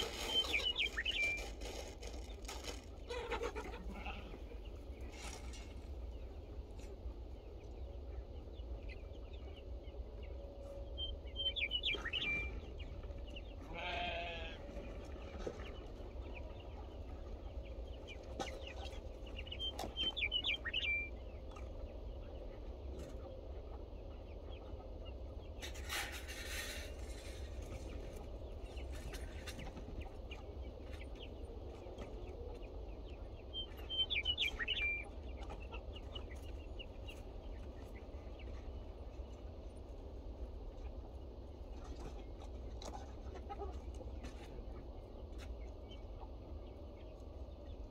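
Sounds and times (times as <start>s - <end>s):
goat bleating: 3.1s - 4.4s, 13.7s - 14.6s.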